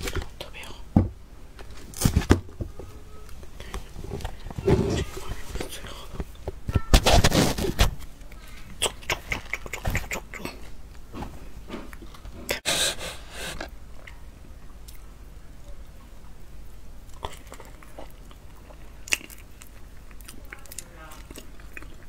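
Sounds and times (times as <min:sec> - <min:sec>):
mouth clicks: 0:08.3 - 0:10.6
loud noisy burst: 0:12.6 - 0:13.7
close-up chewing: 0:17.0 - 0:22.0.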